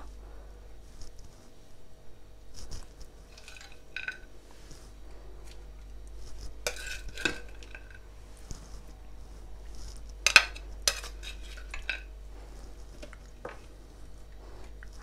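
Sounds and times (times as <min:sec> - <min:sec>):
metal utensil scraping a pan: 0:03.3 - 0:04.3, 0:06.6 - 0:08.0, 0:10.2 - 0:12.1.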